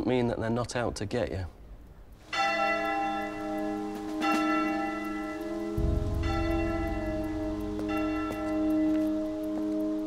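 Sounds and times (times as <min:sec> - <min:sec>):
church bell tolling: 0:02.3 - 0:09.8
deep low rumble: 0:05.8 - 0:08.8.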